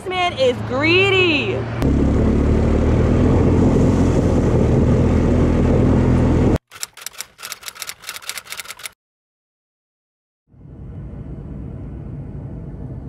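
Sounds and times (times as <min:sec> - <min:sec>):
loud vehicle engine rumble: 0:00.0 - 0:06.6, 0:10.5 - 0:13.0.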